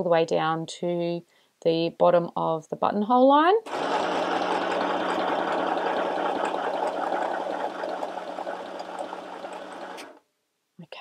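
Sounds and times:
sewing machine running: 3.7s - 10.2s.

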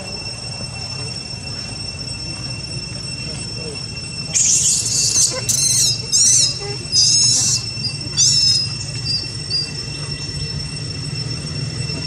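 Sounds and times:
baby monkey crying: 4.3s - 9.2s
faint monkey squeaks: 4.3s - 10.6s.

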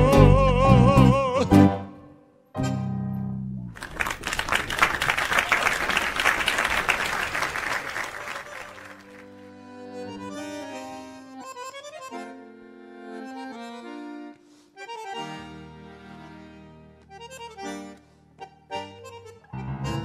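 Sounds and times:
applause: 3.8s - 9.4s
bandoneon playing: 8.4s - 20.0s
tango quartet chord: 8.5s - 20.0s
guitar and piano: 18.9s - 20.0s.

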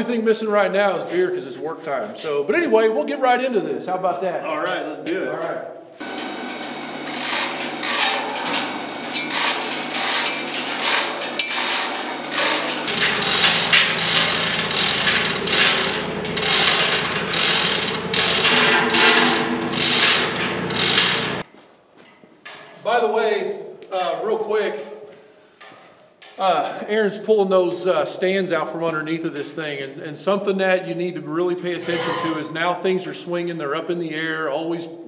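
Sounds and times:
hoist pawl clicking: 6.0s - 21.4s
steady low hum: 6.0s - 21.4s.

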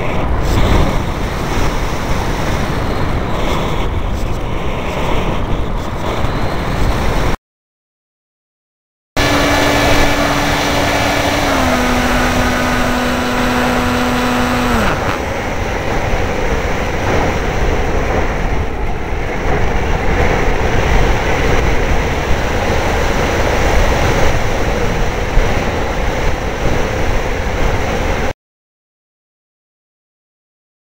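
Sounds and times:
electric motor whining: 9.2s - 15.4s.

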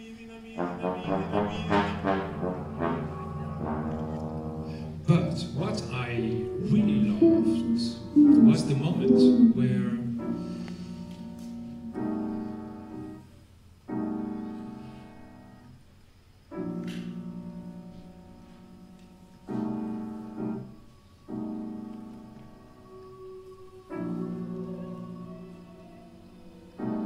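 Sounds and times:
keyboard chords ringing: 1.1s - 13.3s.

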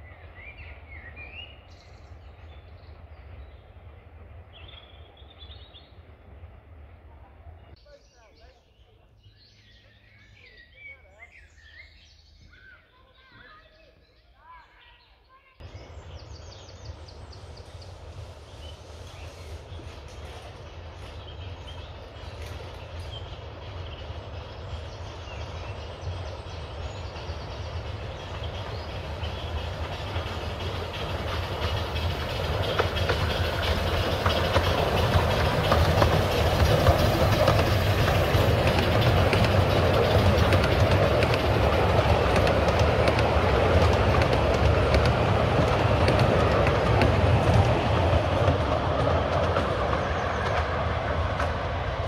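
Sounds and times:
miniature steam train passing: 0.0s - 52.0s
carriages rumbling: 15.6s - 52.0s
wheels clicking on rails: 15.6s - 52.0s.

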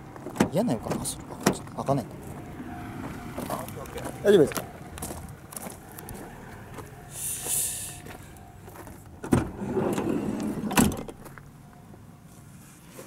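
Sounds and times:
brief hiss: 7.2s - 8.0s.

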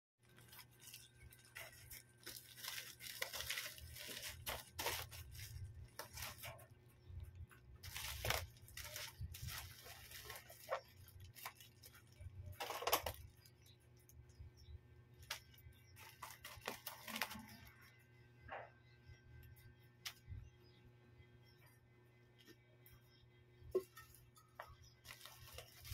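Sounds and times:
plastic mailer bag crinkling: 0.2s - 6.7s, 7.8s - 13.7s, 15.2s - 17.7s, 25.0s - 25.9s.

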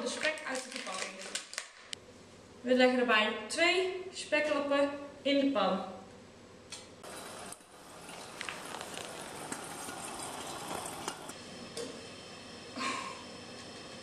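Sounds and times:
fat crackling and popping: 0.0s - 2.0s, 7.5s - 11.3s.

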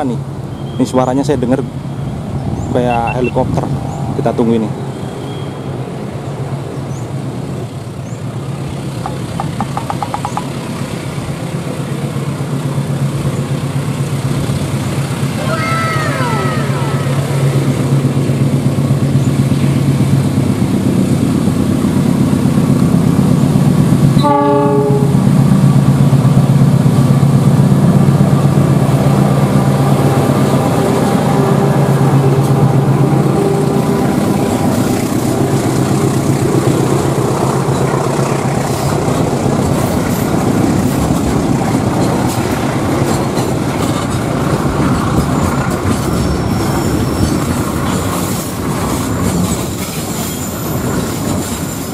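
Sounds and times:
locomotive engine drone: 0.0s - 51.9s
train wheels clattering over rail joints: 8.7s - 15.3s, 34.1s - 51.9s
train horn blast: 24.2s - 25.3s.

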